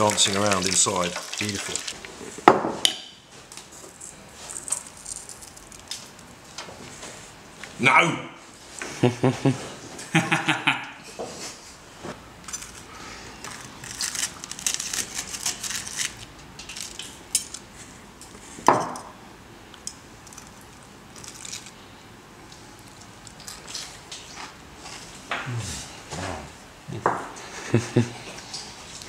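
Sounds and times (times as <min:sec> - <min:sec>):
fried crust crackling: 0:00.0 - 0:02.2, 0:13.4 - 0:17.6.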